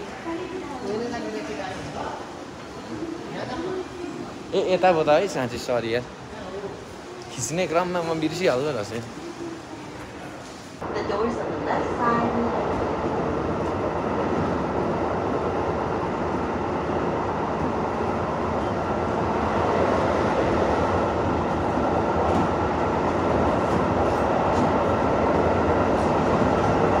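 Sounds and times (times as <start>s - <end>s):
train running on rails: 0.0s - 27.0s.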